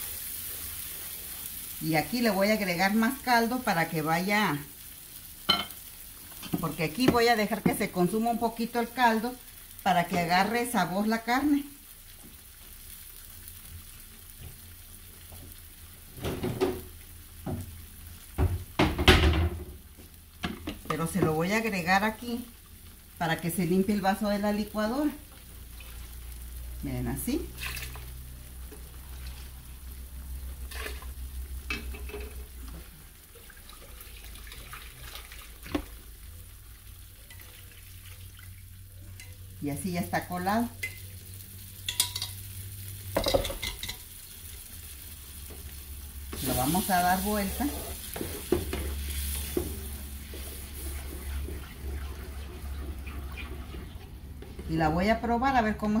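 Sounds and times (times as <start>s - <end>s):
sauce bubbling and sizzling in pan: 0.0s - 56.0s
kitchen knocks and clatters: 16.2s - 17.8s, 18.4s - 19.8s, 43.2s - 44.0s, 48.1s - 49.9s.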